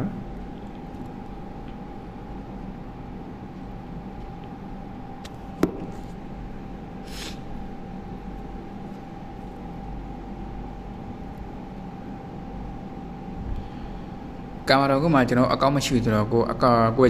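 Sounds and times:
room noise hum and rumble: 0.0s - 17.0s
brief hiss: 7.1s - 7.4s.

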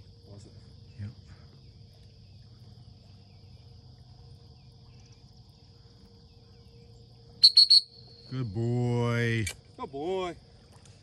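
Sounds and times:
insects chirring: 0.0s - 11.0s.

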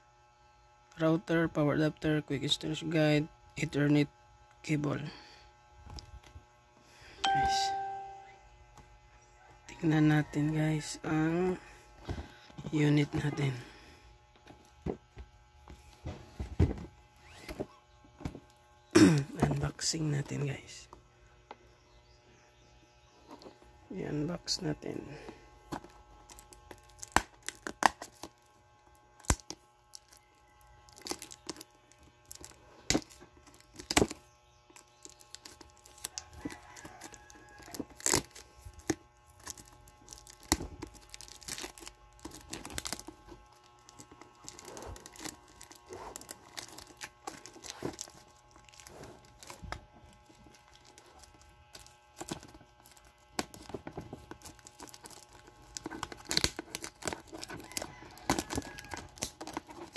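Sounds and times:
plastic wrap crinkling and tearing: 25.6s - 59.9s.

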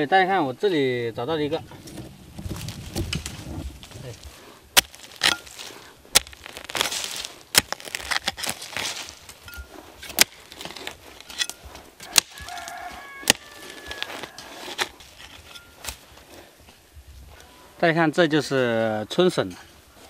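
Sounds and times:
hoe chopping into soil: 1.8s - 16.2s
rooster crowing: 12.0s - 14.9s.

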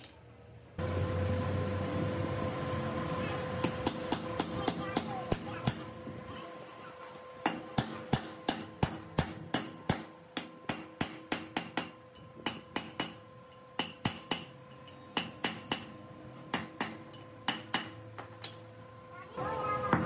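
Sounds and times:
hammer tapping on steel: 7.4s - 18.6s.

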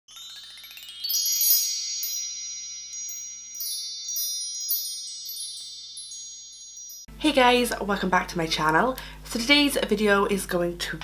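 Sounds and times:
bell-like chime tones: 0.1s - 7.1s
high tinkles: 0.1s - 7.1s.

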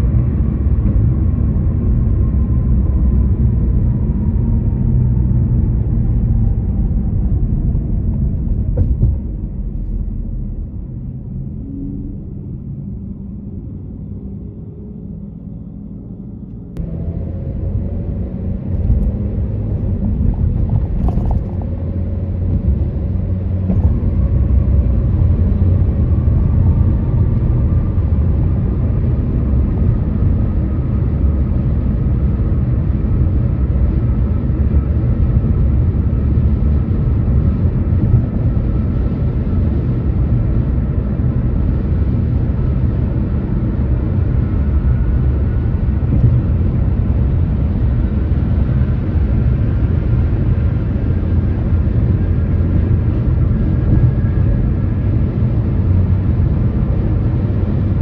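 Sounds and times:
car road noise rumble: 0.0s - 58.0s.

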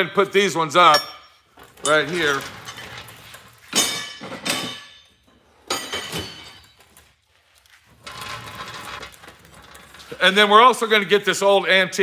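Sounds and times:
steel hammers clanking: 0.8s - 2.9s, 3.7s - 6.7s.

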